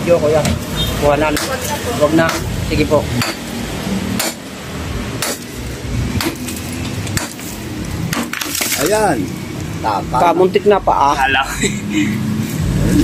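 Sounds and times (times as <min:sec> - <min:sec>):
hammer striking concrete: 0:01.3 - 0:01.6, 0:03.2 - 0:03.5, 0:04.1 - 0:04.5, 0:05.2 - 0:05.5, 0:06.2 - 0:07.5.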